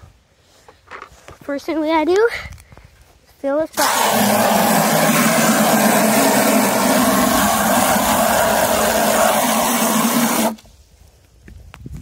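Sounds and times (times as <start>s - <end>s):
hose water spraying into bucket: 3.7s - 10.6s.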